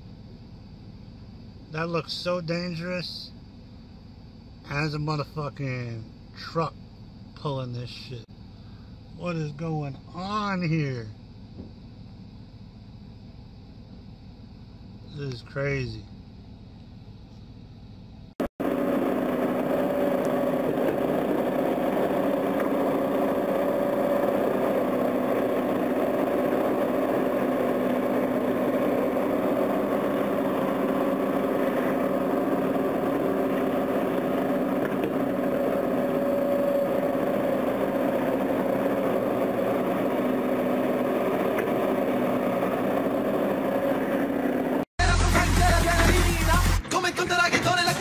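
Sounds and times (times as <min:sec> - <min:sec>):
heavy diesel engine running: 0:18.6 - 0:46.8.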